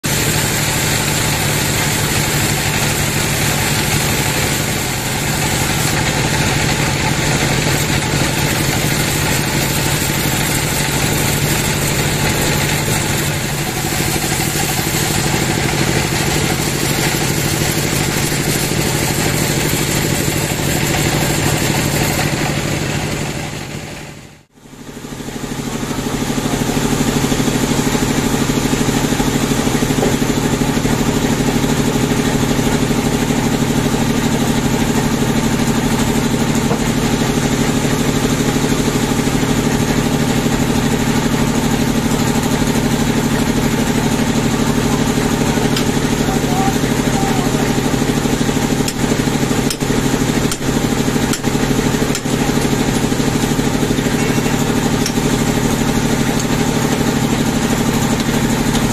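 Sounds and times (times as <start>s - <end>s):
band saw cutting log: 0.0s - 24.3s, 25.2s - 58.9s.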